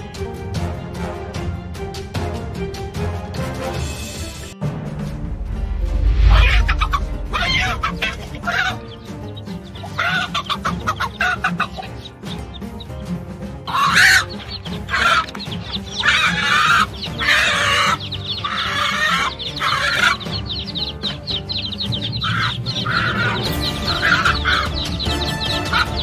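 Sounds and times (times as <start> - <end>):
hen squawking in distress: 6.8 - 9.0, 9.8 - 12.0, 13.7 - 20.7, 21.6 - 26.0.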